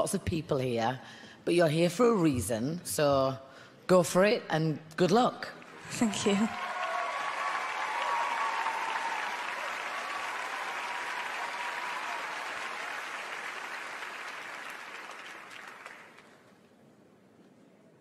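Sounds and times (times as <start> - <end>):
audience applauding: 5.6 - 16.5.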